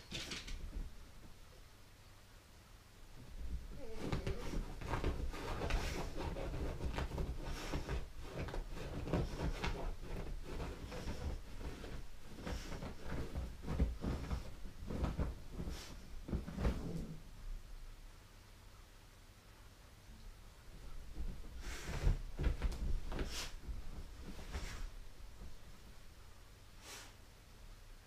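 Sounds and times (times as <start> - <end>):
dog scratching at bedsheets: 3.4 - 17.2, 20.8 - 25.8.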